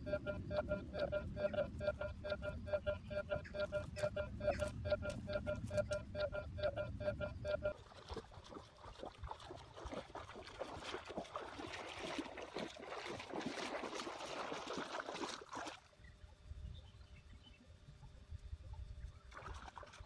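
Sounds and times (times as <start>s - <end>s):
water splashing from wading: 7.5s - 16.0s, 19.2s - 20.0s.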